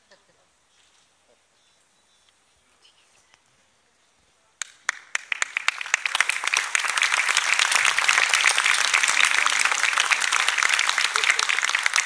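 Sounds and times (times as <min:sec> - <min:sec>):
audience applause: 0:04.8 - 0:12.0.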